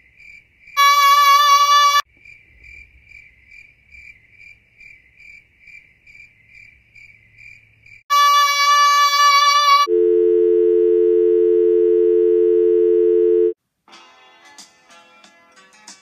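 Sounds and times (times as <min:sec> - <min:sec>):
crickets chirping: 0:00.0 - 0:00.8, 0:02.1 - 0:08.0.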